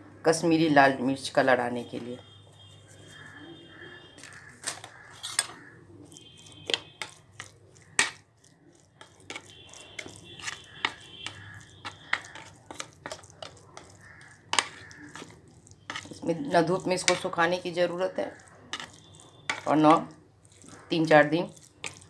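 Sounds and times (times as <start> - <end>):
spoon scraping glass bowl: 2.0 - 22.0.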